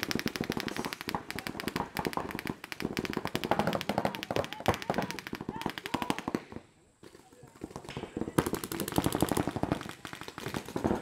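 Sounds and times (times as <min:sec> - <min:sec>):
paintball markers firing: 0:00.0 - 0:06.7.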